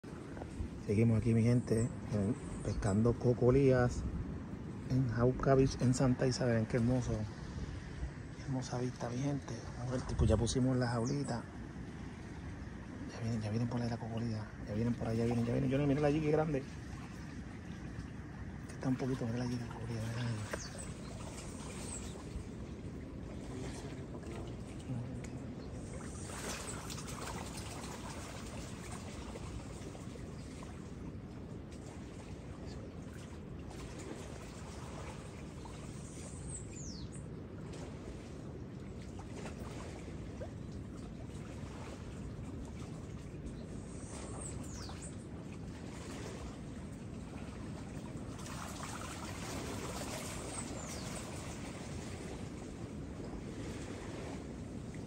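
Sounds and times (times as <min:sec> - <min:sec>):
seawater lapping and trickling: 0:00.0 - 0:55.0
faint splashy ticks: 0:20.4 - 0:22.3.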